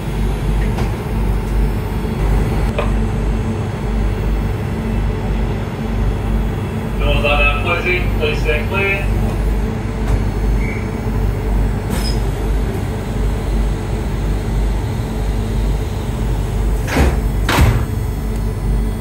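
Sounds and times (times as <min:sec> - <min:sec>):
railcar low hum: 0:00.0 - 0:19.0
sliding door closing with knocks: 0:16.8 - 0:18.0.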